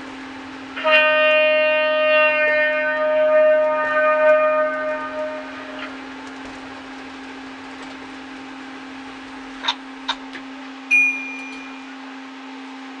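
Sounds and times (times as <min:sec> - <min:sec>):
electric hum of miniature train: 0:00.0 - 0:13.0
high beep: 0:10.9 - 0:12.0.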